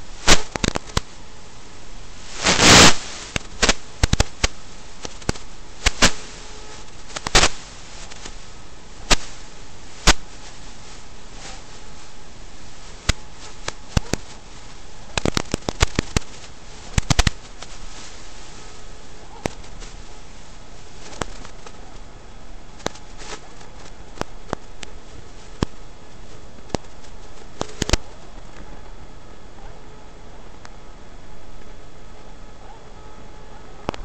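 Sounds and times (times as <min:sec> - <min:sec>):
crackling burst: 0:00.0 - 0:28.5
steady hiss: 0:00.0 - 0:32.6
sharp clicks and pops: 0:00.2 - 0:01.1, 0:02.4 - 0:06.3, 0:06.9 - 0:08.4, 0:09.1 - 0:09.4, 0:10.0 - 0:10.3, 0:13.0 - 0:14.4, 0:15.0 - 0:17.8, 0:21.0 - 0:21.8, 0:22.8 - 0:25.0, 0:26.6 - 0:28.7.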